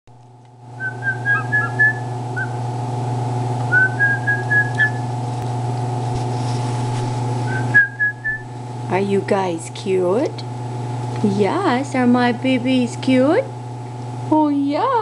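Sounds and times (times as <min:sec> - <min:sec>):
steady low hum: 0:00.1 - 0:15.0
person whistling: 0:00.8 - 0:02.6, 0:03.7 - 0:05.0, 0:07.5 - 0:08.5.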